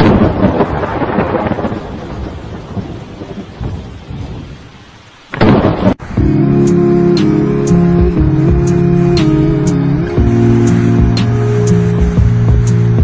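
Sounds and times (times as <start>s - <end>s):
loud thunderclap: 0.0s - 4.6s, 5.3s - 6.2s
rain: 0.0s - 13.0s
thunder rumbling: 0.0s - 13.0s
music: 6.2s - 13.0s.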